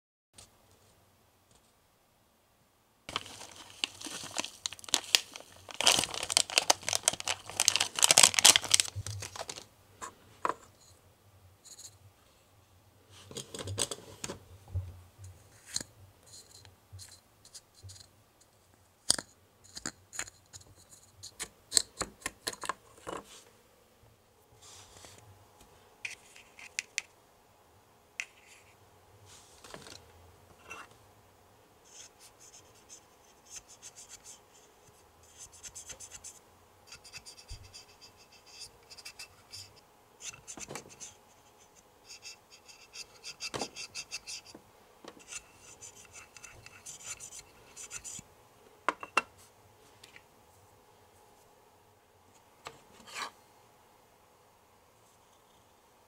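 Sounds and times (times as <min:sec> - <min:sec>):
cotton swab scratching plastic: 0:31.9 - 0:44.5, 0:45.2 - 0:48.2.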